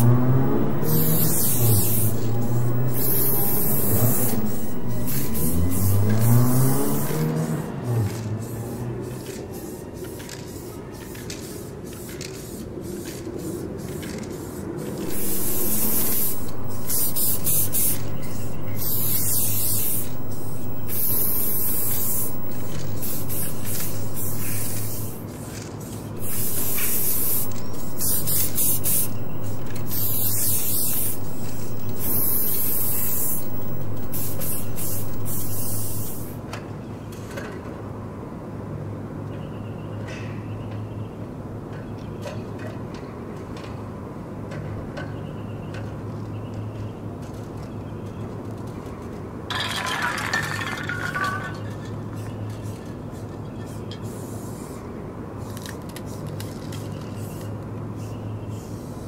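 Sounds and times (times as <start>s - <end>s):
low hum: 0.0s - 7.4s, 15.0s - 25.2s, 26.2s - 36.4s
passing vehicle: 0.0s - 9.5s, 15.0s - 25.4s, 26.1s - 36.4s
spray paint can hissing: 0.0s - 36.4s, 49.5s - 51.7s, 53.7s - 54.8s
street noise: 0.0s - 59.0s.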